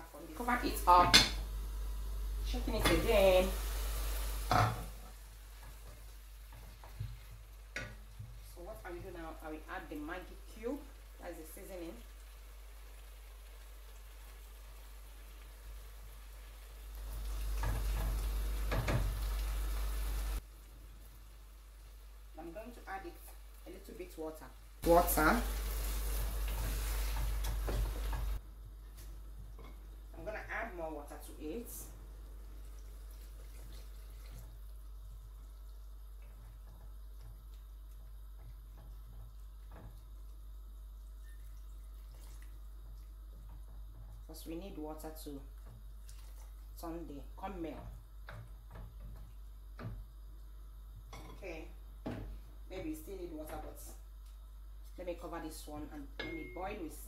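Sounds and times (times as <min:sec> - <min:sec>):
low rumble with hiss: 0:00.0 - 0:06.5
steady low hum: 0:00.0 - 0:06.5
wooden spoon stirring in pot: 0:05.5 - 0:11.0, 0:24.8 - 0:30.7, 0:32.3 - 0:51.2
water pouring into a pot: 0:24.9 - 0:28.4, 0:32.3 - 0:37.6, 0:38.7 - 0:43.7, 0:45.9 - 0:46.8.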